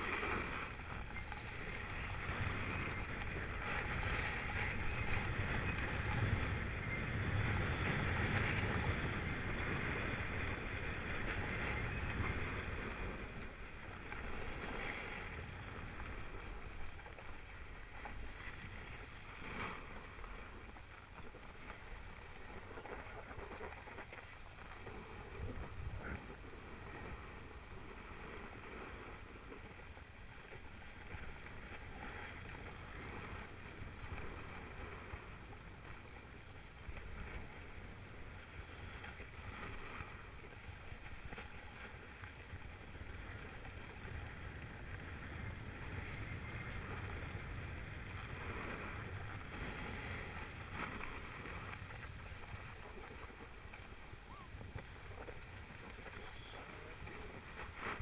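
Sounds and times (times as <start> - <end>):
wind buffeting microphone: 0.0 - 17.0, 24.8 - 29.4, 42.2 - 58.0
skis sliding over packed snow: 0.0 - 58.0.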